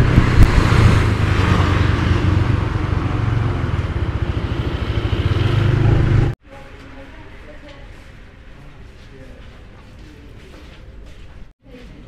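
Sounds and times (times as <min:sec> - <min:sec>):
motorbike engine running: 0:00.0 - 0:06.4
wind and road noise: 0:00.0 - 0:06.4.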